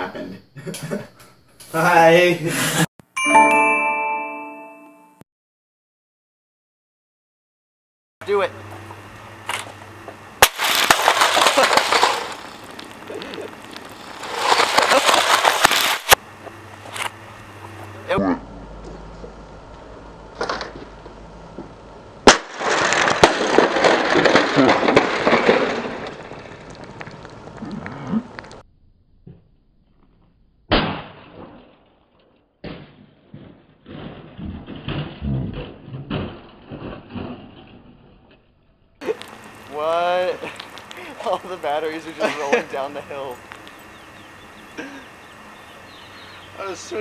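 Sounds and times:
boombox smashing on concrete: 10.4 - 16.2, 22.2 - 27.4, 32.6 - 38.3
plastic pieces clattering on concrete: 10.4 - 16.2, 22.6 - 27.2.

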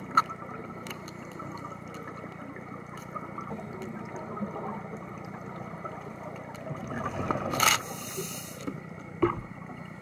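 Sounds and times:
faint underwater clicks: 0.0 - 10.0
underwater hiss and rumble: 0.0 - 10.0.

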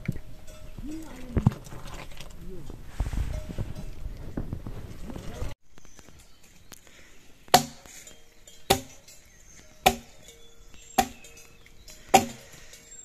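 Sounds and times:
blade chopping strikes: 7.5 - 7.9, 8.7 - 9.1, 9.8 - 10.2, 11.0 - 11.4, 12.1 - 12.5.

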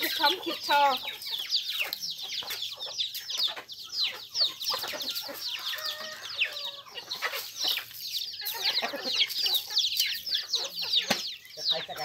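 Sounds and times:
chicks peeping: 0.0 - 12.0.

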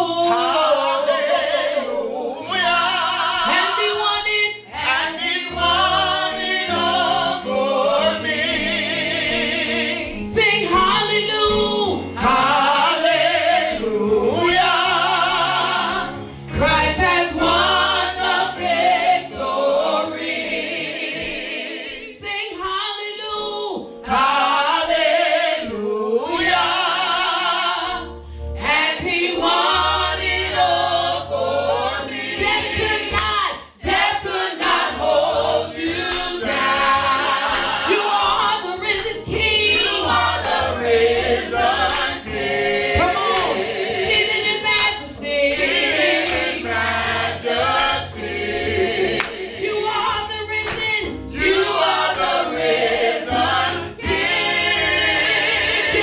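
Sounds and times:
man and woman singing gospel: 0.0 - 56.0.

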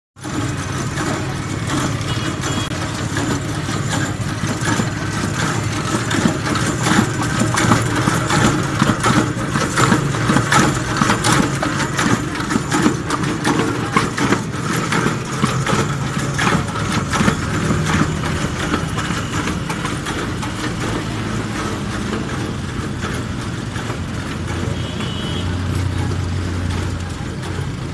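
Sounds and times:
grinder knocking and clattering: 0.2 - 27.9
small engine running: 0.2 - 27.9.

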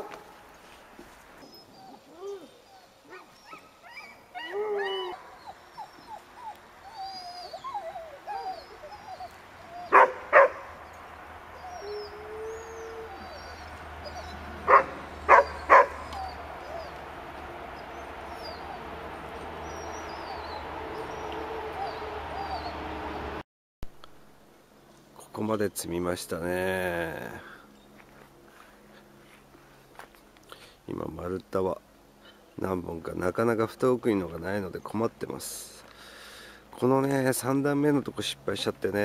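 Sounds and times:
dogs whining and yipping: 1.4 - 23.3
sharp dog barks: 9.9 - 10.7, 14.6 - 16.0.

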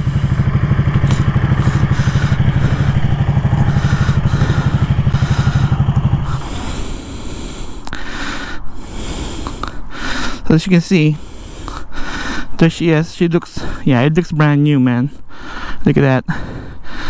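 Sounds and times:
motorcycle engine idling: 0.0 - 9.4.

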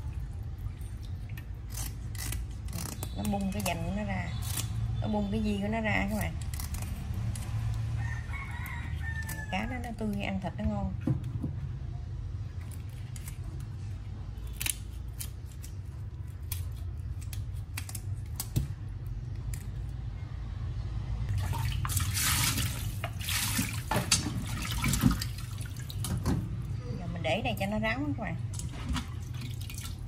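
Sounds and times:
water splashing in a steel bowl: 0.0 - 3.9, 21.3 - 26.2, 28.5 - 30.0.

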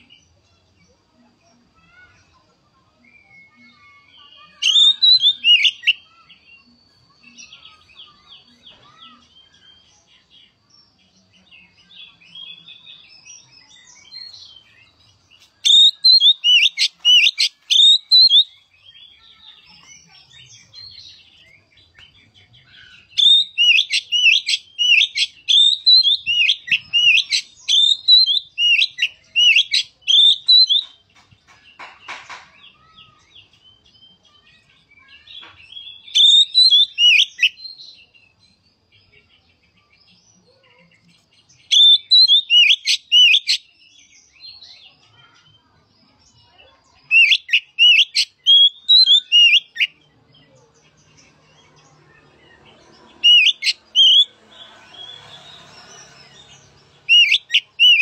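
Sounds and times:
quiet bird twittering: 0.0 - 31.9, 32.6 - 58.0
bird singing whistled phrases: 4.4 - 6.2, 15.6 - 18.9, 22.7 - 30.9, 35.0 - 37.8, 41.7 - 43.7, 47.1 - 50.0, 53.2 - 54.3, 57.0 - 58.0.

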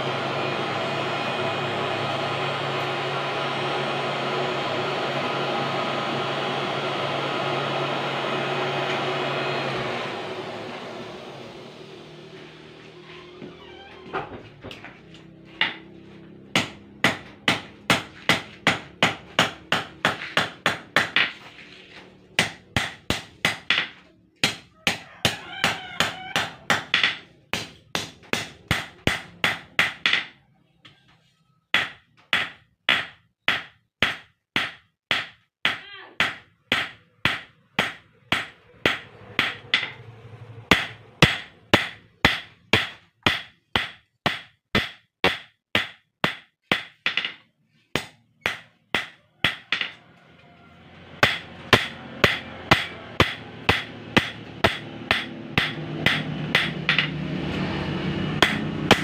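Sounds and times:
hammer blows on anvil: 51.2 - 57.6, 58.2 - 59.0.

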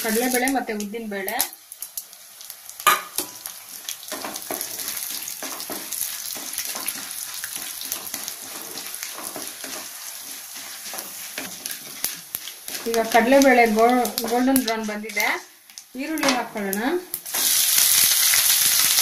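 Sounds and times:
lentils sizzling in hot oil: 0.0 - 19.0.

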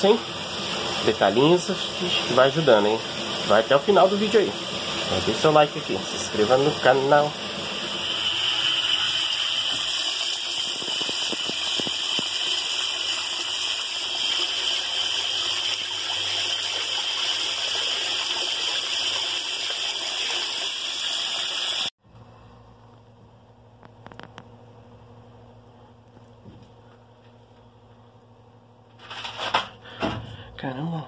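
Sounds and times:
water spraying into tank: 0.0 - 21.9.

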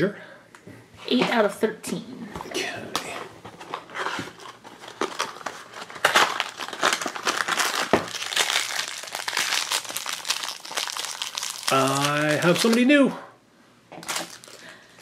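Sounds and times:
cardboard box crinkling and tearing: 3.6 - 12.8, 14.0 - 14.6.

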